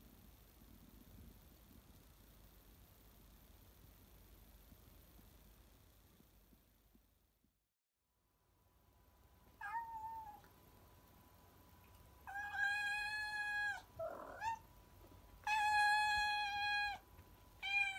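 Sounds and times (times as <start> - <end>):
cat meowing: 9.6 - 10.5, 12.3 - 14.6, 15.4 - 17.0, 17.6 - 17.9.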